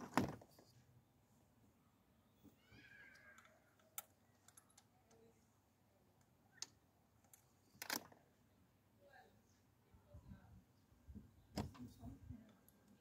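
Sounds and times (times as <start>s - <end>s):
clicks and knocks handling parts: 3.1s - 5.2s, 6.2s - 8.2s.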